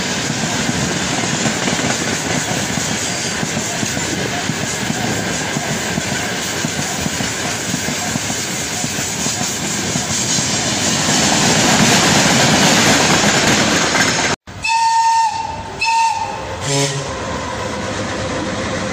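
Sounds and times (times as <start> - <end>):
freight train wagons rumbling past: 0.0 - 18.9
locomotive horn blast: 14.5 - 18.9.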